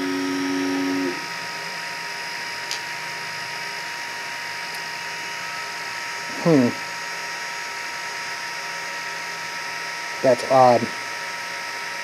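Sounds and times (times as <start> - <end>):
stepper motor whining: 0.0 - 1.8
steady electrical hum: 0.0 - 12.0.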